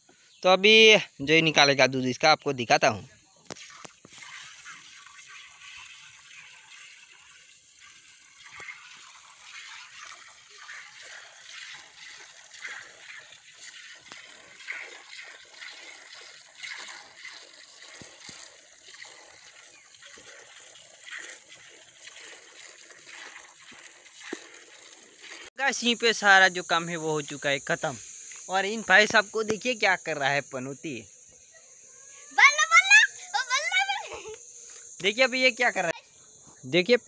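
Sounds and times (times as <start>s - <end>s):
milk squirting into steel pail: 3.4s - 25.5s.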